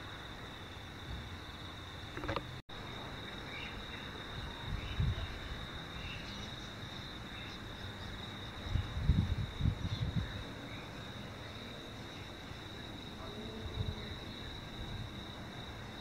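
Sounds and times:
insects trilling: 0:00.0 - 0:16.0
wind buffeting microphone: 0:04.2 - 0:06.1, 0:08.4 - 0:10.7, 0:13.2 - 0:15.4.

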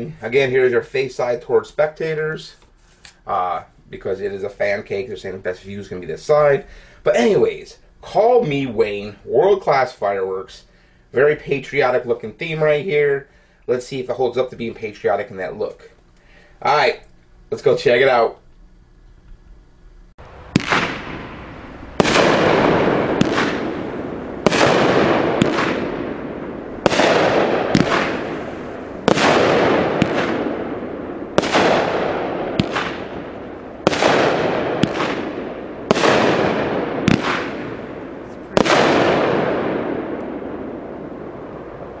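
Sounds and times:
firework bangs with hiss: 0:20.3 - 0:42.0
sharp firework pops: 0:20.5 - 0:21.4, 0:22.0 - 0:26.2, 0:26.8 - 0:40.6.

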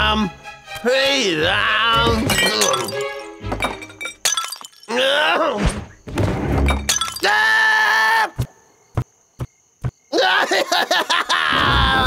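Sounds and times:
cartoon monkey yelling: 0:01.4 - 0:02.2.

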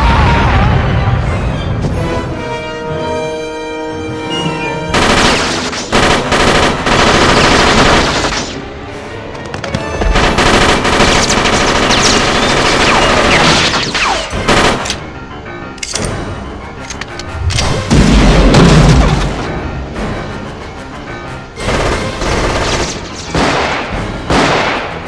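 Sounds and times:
rapid gunfire: 0:04.9 - 0:08.6, 0:10.0 - 0:15.0, 0:21.6 - 0:24.9.

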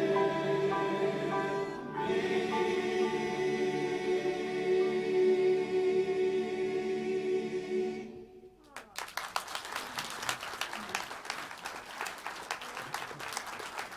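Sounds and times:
male choir holding chord: 0:00.0 - 0:08.5
audience applause: 0:08.7 - 0:13.9.

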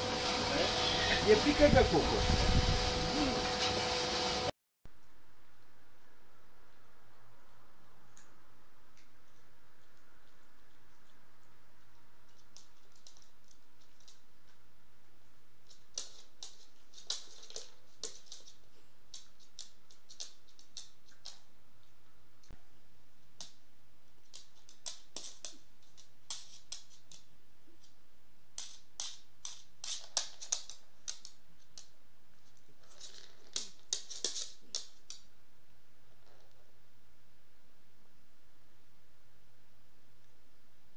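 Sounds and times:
dog claws clicking on wood floor: 0:09.0 - 0:14.6, 0:15.6 - 0:22.0, 0:24.2 - 0:35.3.

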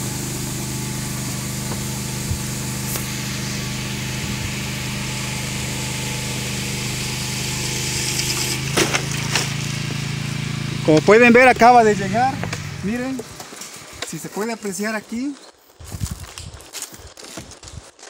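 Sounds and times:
winch engine running under load: 0:00.0 - 0:14.1.

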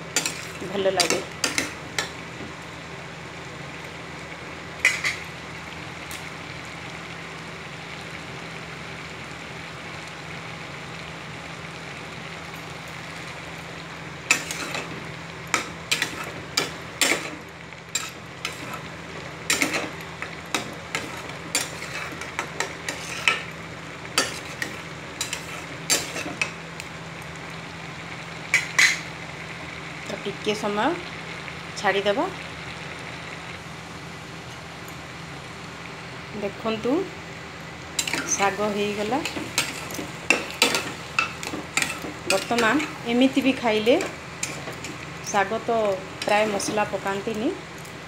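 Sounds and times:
pan cooking hiss: 0:00.0 - 0:48.0
spatula scraping and knocking pan: 0:19.5 - 0:23.5.

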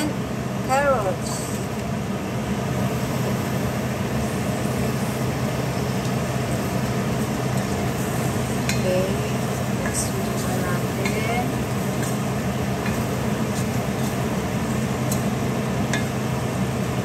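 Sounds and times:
food sizzling in oil: 0:00.0 - 0:17.0
low steady hum: 0:00.0 - 0:17.0
spatula stirring in pan: 0:04.1 - 0:17.0.

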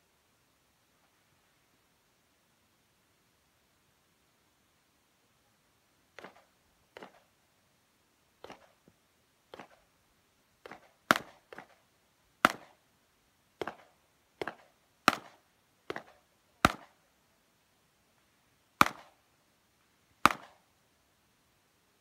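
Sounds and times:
handgun shots: 0:10.6 - 0:11.8, 0:12.4 - 0:12.7, 0:13.6 - 0:16.9, 0:18.8 - 0:19.1, 0:20.2 - 0:20.6.

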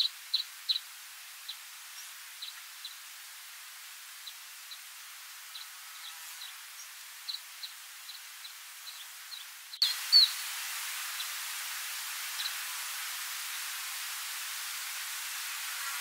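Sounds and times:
faint steady hiss: 0:00.0 - 0:16.0
songbird calling: 0:05.5 - 0:10.5.

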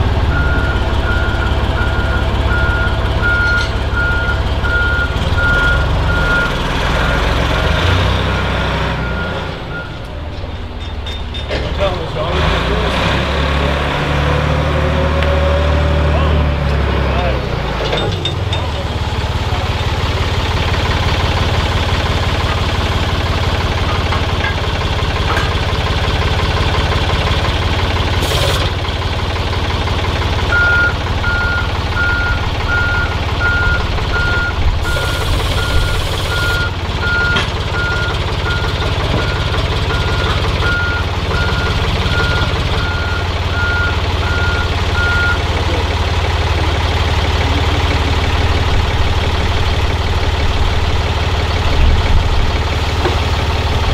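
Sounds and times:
heavy vehicle engine running: 0:00.0 - 0:53.9
reversing alarm beeping: 0:00.2 - 0:07.2, 0:30.5 - 0:45.6.

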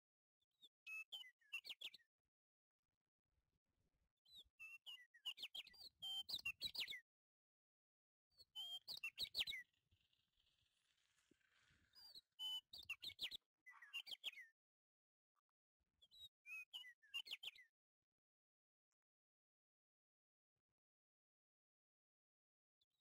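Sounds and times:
bird chirping: 0:11.8 - 0:14.5.

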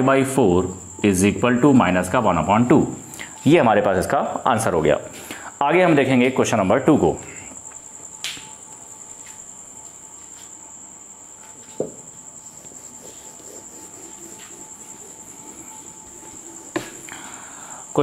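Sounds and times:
cricket trilling: 0:00.0 - 0:18.0
duster rubbing whiteboard: 0:12.4 - 0:17.2.

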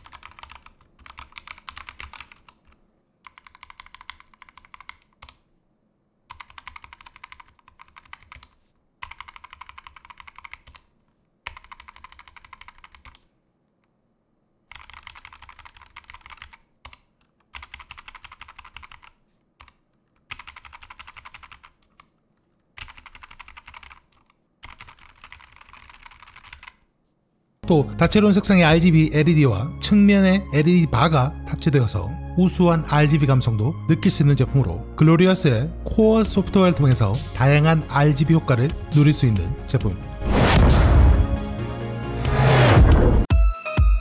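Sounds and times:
fast typing on mechanical keyboard: 0:00.0 - 0:05.4, 0:06.3 - 0:13.3, 0:14.7 - 0:22.1, 0:22.7 - 0:26.8.

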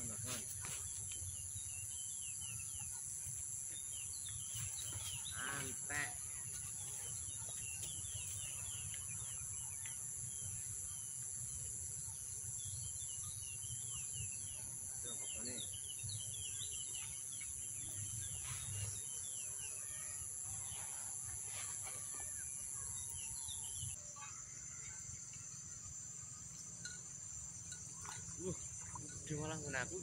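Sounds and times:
bird chirps: 0:00.0 - 0:20.9.

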